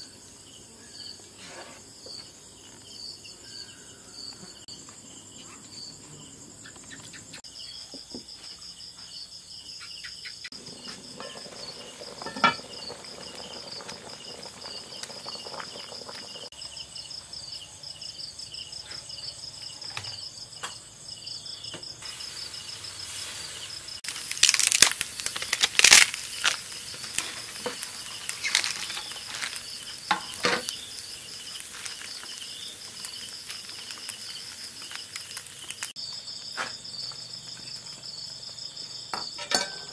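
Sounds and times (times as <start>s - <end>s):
crickets chirping: 0.0s - 39.9s
kitchen handling noises: 39.2s - 39.9s.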